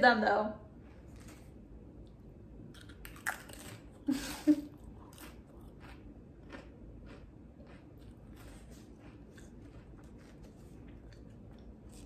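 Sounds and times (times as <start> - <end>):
chewing crunches: 2.7 - 4.1, 4.7 - 12.0
potato crisp crunch: 2.7 - 4.1, 4.8 - 12.0.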